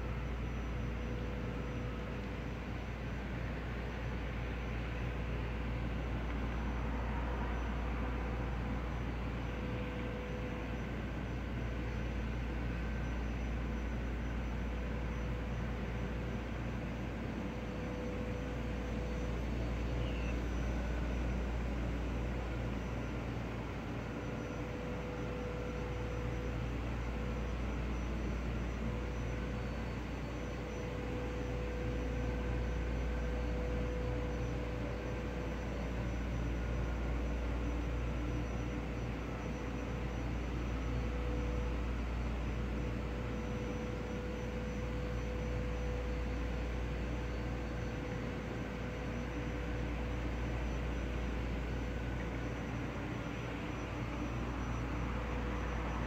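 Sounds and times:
mid-pitched hum: 0:00.0 - 0:56.0.

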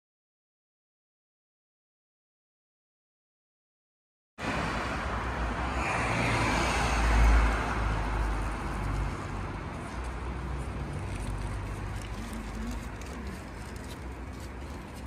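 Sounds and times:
car passing on wet road: 0:04.4 - 0:13.6.

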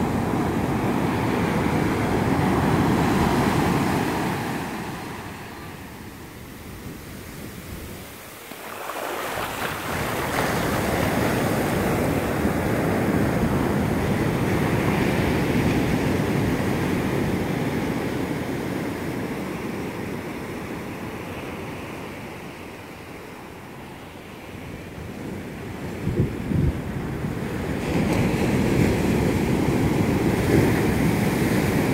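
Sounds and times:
wash rushing up sand: 0:00.0 - 0:13.7
wave breaking on shore: 0:00.0 - 0:16.9.

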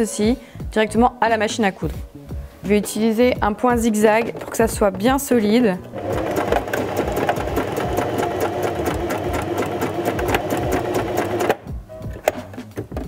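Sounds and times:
electric sewing machine running: 0:05.9 - 0:11.6.

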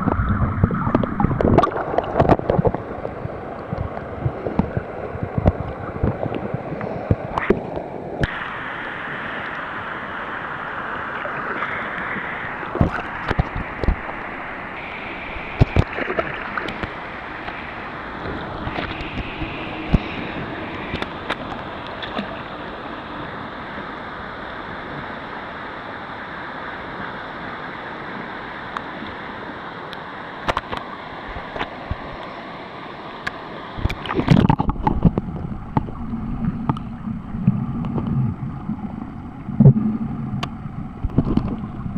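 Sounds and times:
sharp water splashes: 0:00.0 - 0:02.8, 0:12.7 - 0:17.6
rushing river rapids: 0:00.0 - 0:37.4.

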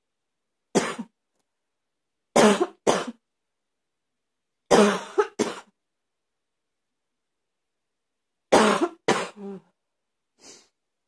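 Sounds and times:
person coughing: 0:00.8 - 0:01.1, 0:02.4 - 0:03.2, 0:04.7 - 0:05.8, 0:08.5 - 0:09.7.

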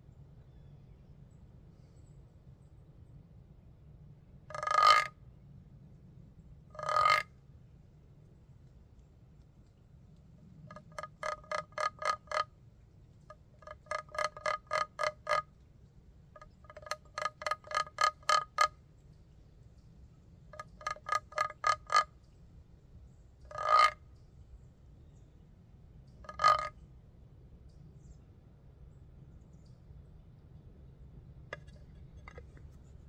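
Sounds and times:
wooden box call squawking: 0:04.5 - 0:05.1, 0:06.8 - 0:07.3, 0:10.7 - 0:12.5, 0:13.6 - 0:15.5, 0:16.4 - 0:18.7, 0:20.6 - 0:22.1, 0:23.5 - 0:24.0, 0:26.3 - 0:26.7, 0:31.5 - 0:32.8.

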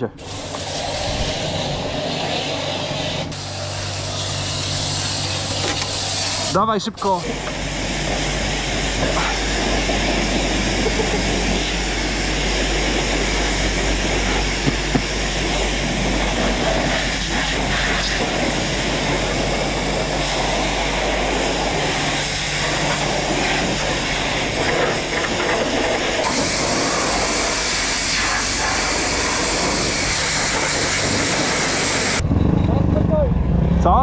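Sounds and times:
wind over microphone: 0:00.8 - 0:03.2, 0:28.3 - 0:33.9
dirt bike engine: 0:03.3 - 0:26.4.

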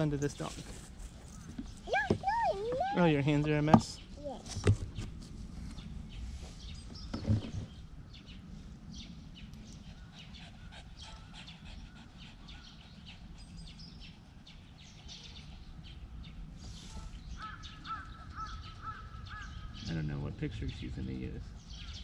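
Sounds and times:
small birds chirping: 0:00.0 - 0:22.0
crow cawing: 0:17.4 - 0:19.8.

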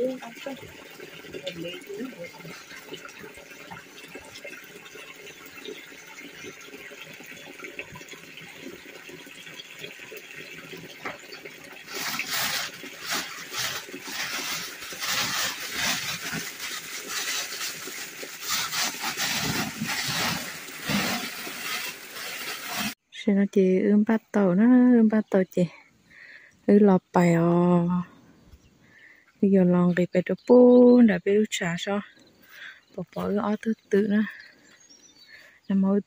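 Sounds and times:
nylon tarp rustling and crinkling: 0:10.6 - 0:23.0.

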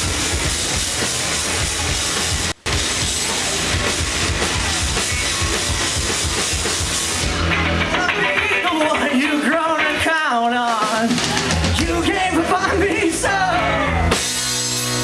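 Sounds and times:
bass guitar: 0:00.0 - 0:15.0
drum kit pounding: 0:00.0 - 0:15.0
electric guitars: 0:00.0 - 0:15.0.

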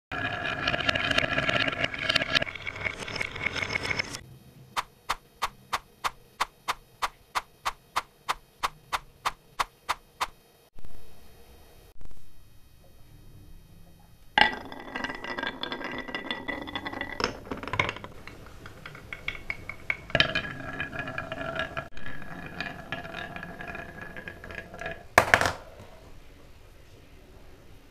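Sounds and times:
marbles rolling on wooden track: 0:00.2 - 0:04.1, 0:04.8 - 0:10.3, 0:14.4 - 0:26.1
sharp wooden clacks: 0:04.8 - 0:10.4.

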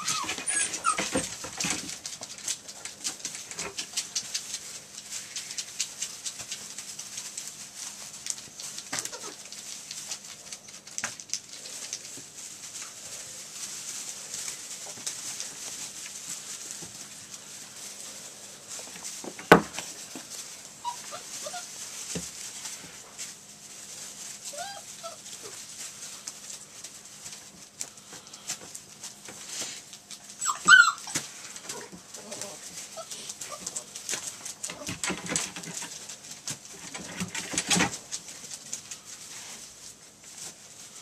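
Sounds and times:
puppies whining and yipping: 0:00.0 - 0:01.5, 0:09.0 - 0:09.5, 0:20.8 - 0:21.7, 0:24.4 - 0:25.6, 0:30.3 - 0:31.3, 0:32.2 - 0:33.8
puppies scrambling in wood shavings: 0:00.0 - 0:41.0.

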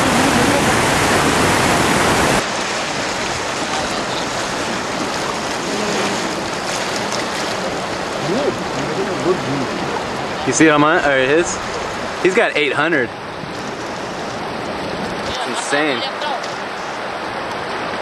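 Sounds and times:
river rapids rushing over rocks: 0:00.0 - 0:18.0.

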